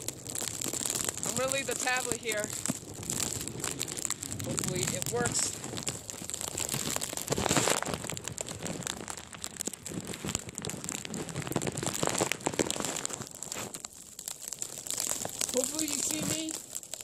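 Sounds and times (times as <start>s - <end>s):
plastic crinkling: 0.0s - 17.0s
wind gusting against microphone: 1.2s - 8.9s
snow pelting device: 4.4s - 9.1s, 15.4s - 16.6s.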